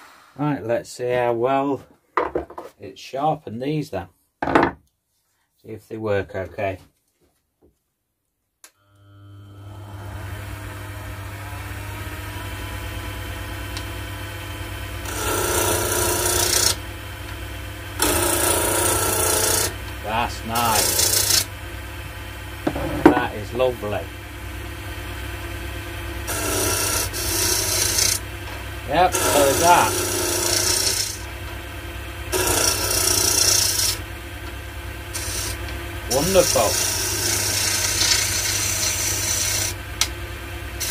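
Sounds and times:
lathe motor humming: 0:08.9 - 0:40.9
chisel shaving wood: 0:12.0 - 0:21.6, 0:26.2 - 0:31.5, 0:32.2 - 0:40.9.

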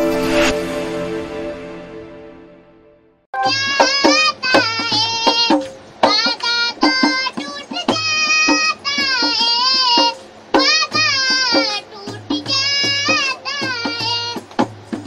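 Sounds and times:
girl singing: 0:03.4 - 0:14.6.

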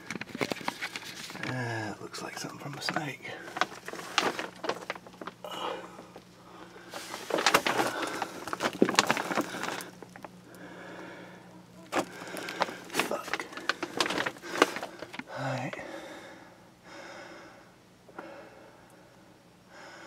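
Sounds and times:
plastic sheeting crinkling: 0:00.0 - 0:11.0, 0:11.6 - 0:16.2.

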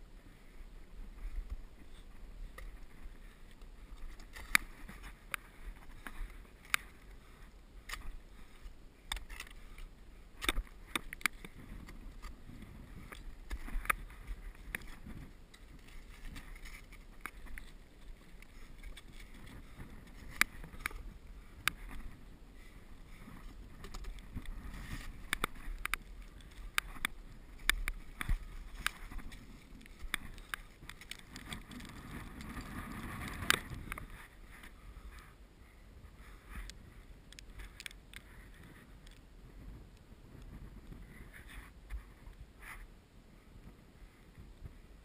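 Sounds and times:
metal clicking on rock: 0:09.0 - 0:21.0, 0:23.3 - 0:34.2.

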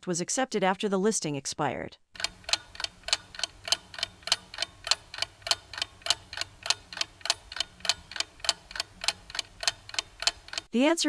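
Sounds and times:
clock ticking: 0:02.2 - 0:10.7.

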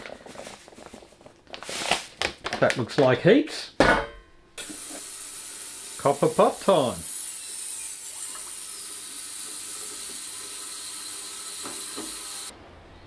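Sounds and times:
liquid hissing or fizzing: 0:04.6 - 0:12.5.

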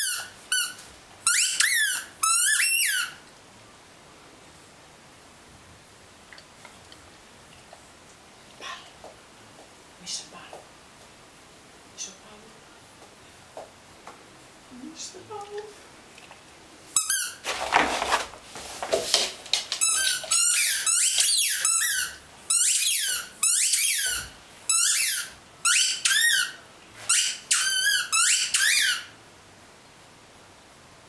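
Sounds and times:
squeaky toy ball squeaking: 0:00.0 - 0:03.2, 0:17.0 - 0:17.4, 0:19.8 - 0:29.1
rustling noise: 0:15.6 - 0:21.8.

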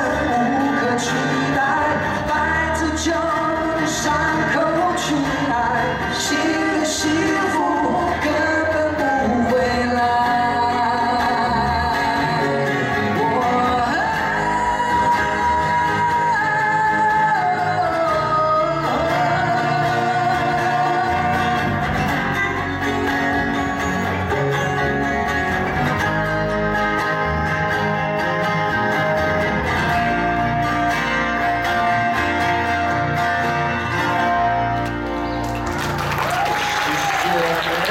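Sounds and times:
men singing: 0:00.0 - 0:21.8
electric guitar: 0:00.0 - 0:37.9
strummed acoustic guitars: 0:00.0 - 0:37.9.

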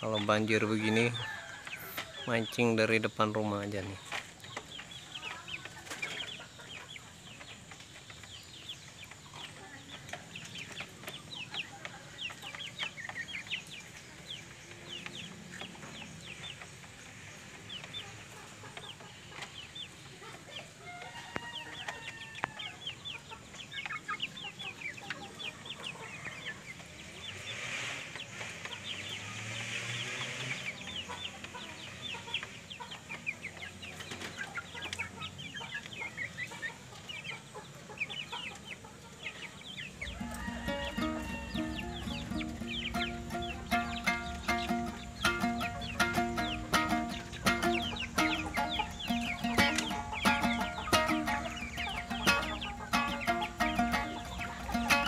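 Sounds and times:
chickens clucking: 0:00.0 - 0:55.0
loud chicken call: 0:40.0 - 0:55.0.

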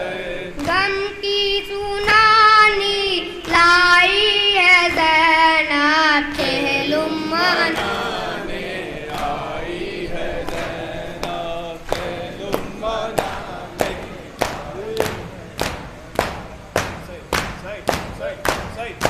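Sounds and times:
boy singing a lament: 0:00.0 - 0:08.5
group of voices: 0:06.2 - 0:15.7
palms slapping chests: 0:10.4 - 0:19.0.

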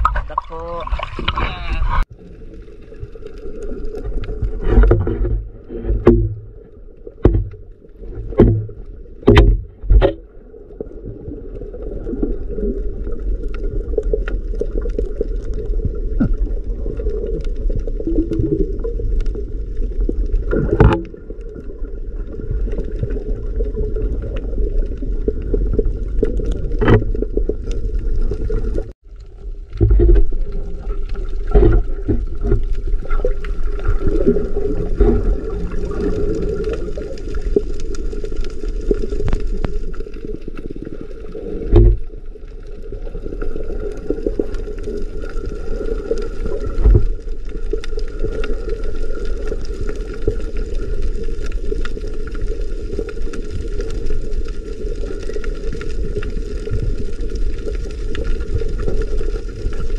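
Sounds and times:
underwater rumble: 0:00.0 - 0:59.9
sharp underwater knocks and clicks: 0:04.0 - 0:10.3, 0:20.1 - 0:21.5, 0:25.3 - 0:29.0, 0:29.7 - 0:40.7, 0:41.6 - 0:42.1, 0:46.1 - 0:48.5.

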